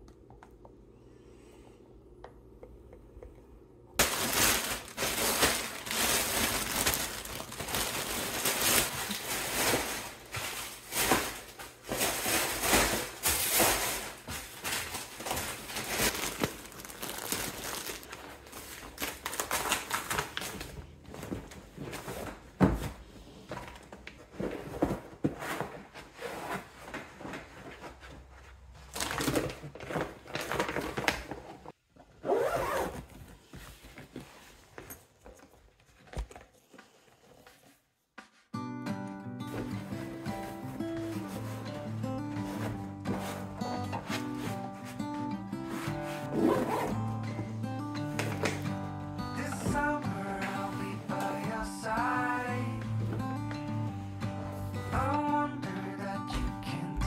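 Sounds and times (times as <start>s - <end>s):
plastic packaging crinkling: 4.0s - 21.5s, 28.8s - 31.7s.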